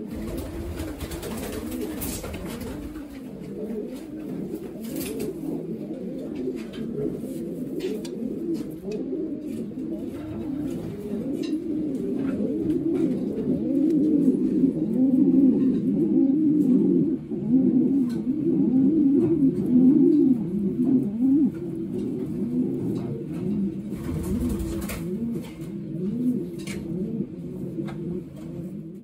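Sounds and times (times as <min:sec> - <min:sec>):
pigeons cooing: 0:00.0 - 0:29.0.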